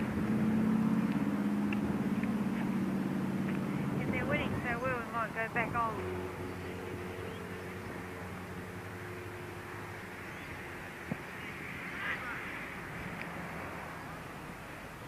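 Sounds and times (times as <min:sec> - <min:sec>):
distant shout: 0:11.4 - 0:12.7.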